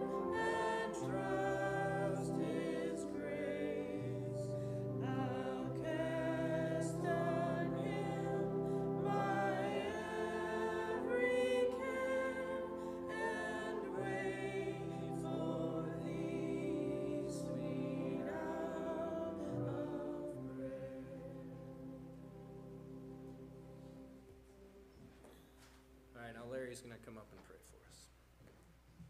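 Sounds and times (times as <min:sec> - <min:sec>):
woman and man singing a hymn: 0:00.0 - 0:22.1
held accompaniment chords: 0:00.0 - 0:26.5.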